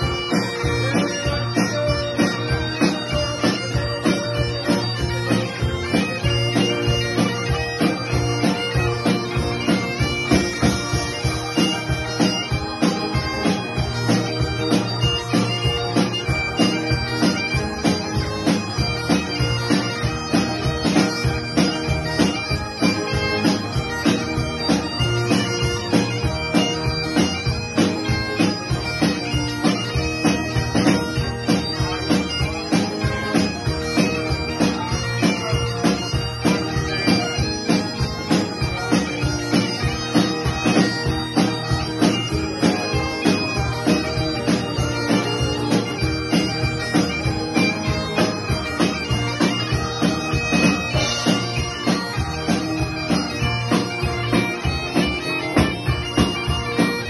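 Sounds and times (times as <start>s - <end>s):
bagpipes playing a tune: 0.0s - 57.0s
electric keyboard: 0.0s - 57.0s.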